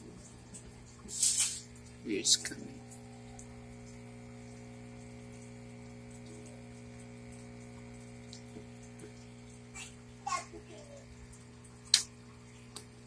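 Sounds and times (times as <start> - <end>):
water bubbling and trickling: 0.0 - 10.2
aquarium pump humming: 0.0 - 13.0.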